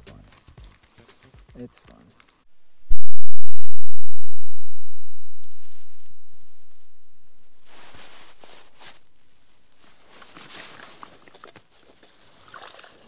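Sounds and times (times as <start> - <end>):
padded jacket rustling: 7.4 - 12.4.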